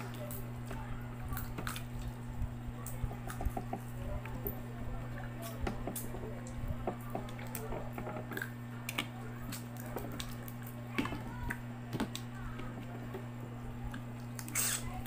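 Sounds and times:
steady low hum: 0.0s - 15.0s
wet squishes of chewing: 5.2s - 12.9s.

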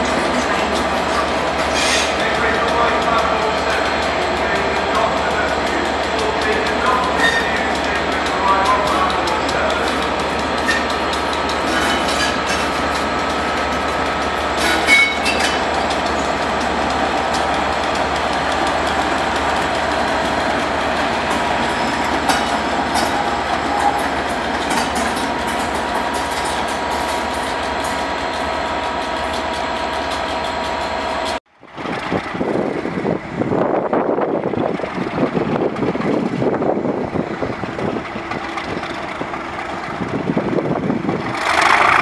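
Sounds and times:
diesel locomotive engine running: 0.0s - 42.0s
wheel clicks on rail: 0.6s - 32.8s.

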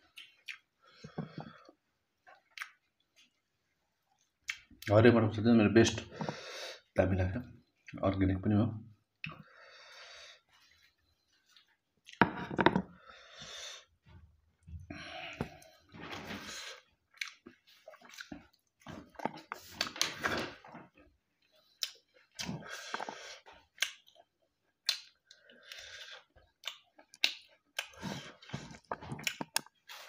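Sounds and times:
chewing and squelching: 0.0s - 4.9s, 17.0s - 30.0s.

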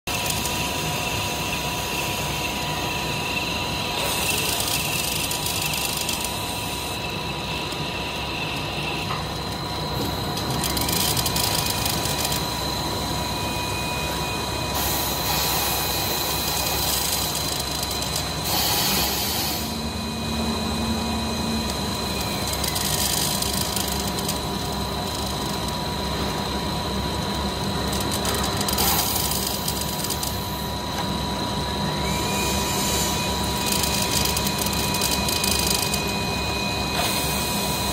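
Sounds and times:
machine hum with high whine: 0.0s - 37.9s
whine changing pitch: 1.0s - 28.1s.

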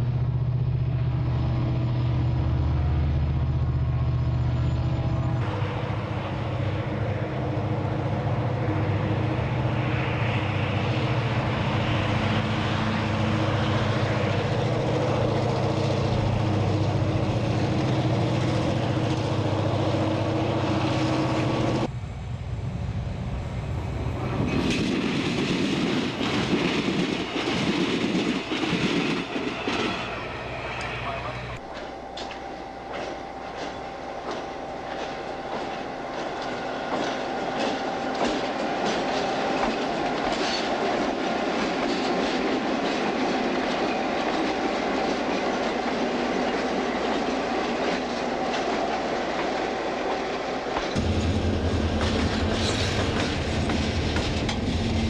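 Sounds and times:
diesel locomotive engine drone: 0.0s - 55.0s
passenger train rushing past: 0.0s - 55.0s
wheels clicking over rail joints: 31.6s - 55.0s.

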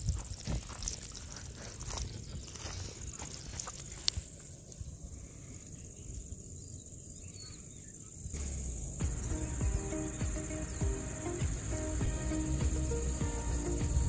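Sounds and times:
crickets buzzing: 0.0s - 14.0s
low outdoor rumble: 8.4s - 14.0s.

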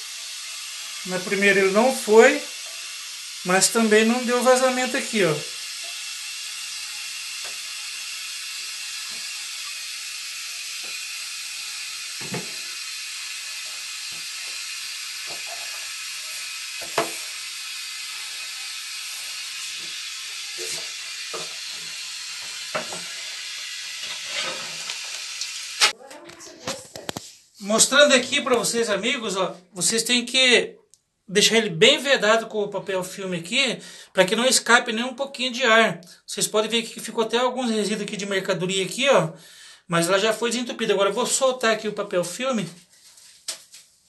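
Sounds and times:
hiss of flushing water: 0.0s - 25.9s.

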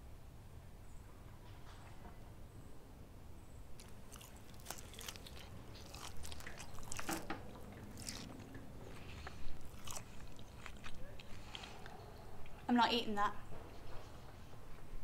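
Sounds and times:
person chewing meat: 3.8s - 12.0s.

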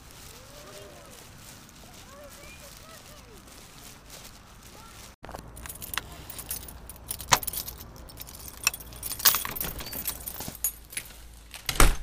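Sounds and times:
metallic jingling and clicking: 5.3s - 11.3s.

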